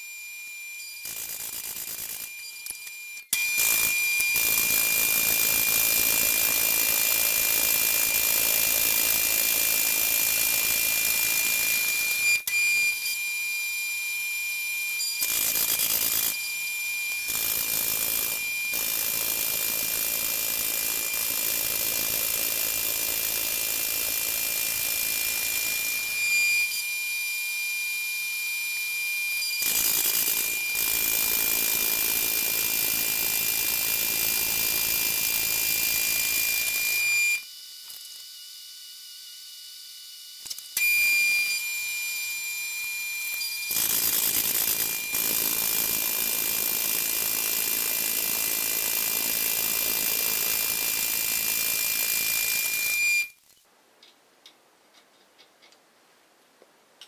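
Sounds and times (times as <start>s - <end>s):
milling saw whine: 9.1s - 46.8s.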